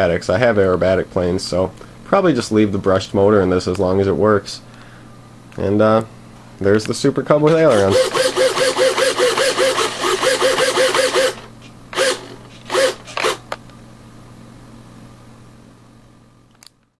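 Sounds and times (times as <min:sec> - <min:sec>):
small servos buzzing: 0:07.6 - 0:13.5.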